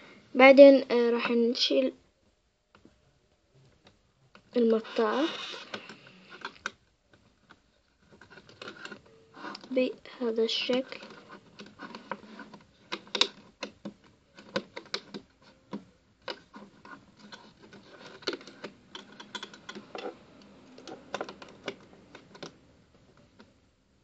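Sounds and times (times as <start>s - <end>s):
crochet hook clicking on loom: 10.7s - 22.6s.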